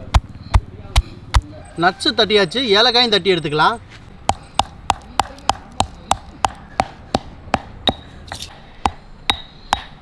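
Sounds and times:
stone pestle pounding in mortar: 4.3 - 10.0.

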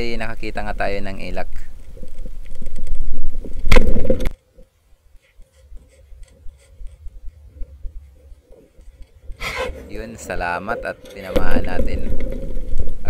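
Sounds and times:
underwater clicking and crackling: 1.3 - 13.0.

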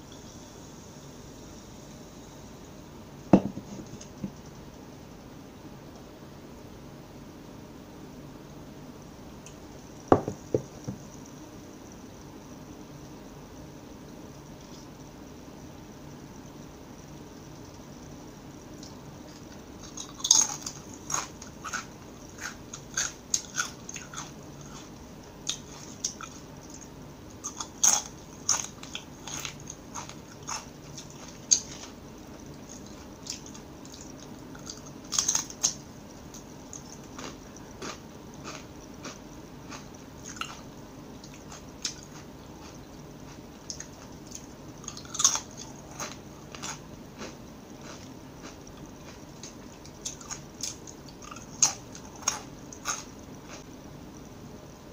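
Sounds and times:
crunching chips: 18.8 - 35.8, 36.4 - 53.6
chewing: 18.8 - 53.7.

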